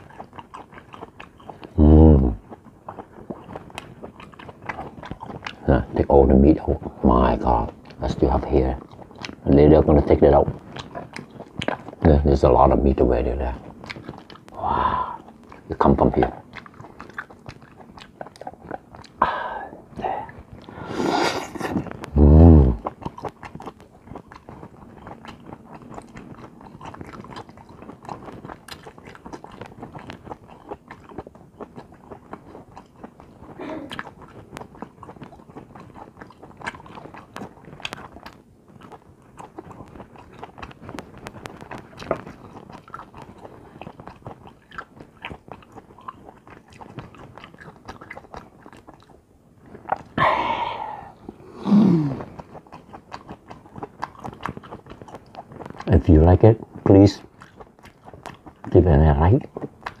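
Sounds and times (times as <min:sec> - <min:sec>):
man chewing with wet smacks: 0:00.0 - 1:00.0
short vocal hum: 0:01.8 - 0:02.4, 0:20.9 - 0:22.8, 0:50.2 - 0:52.3.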